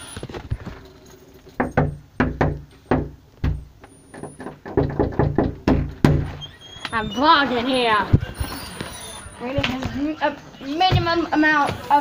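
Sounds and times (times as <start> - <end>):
knocking on a door: 1.6 - 3.6, 4.2 - 6.4.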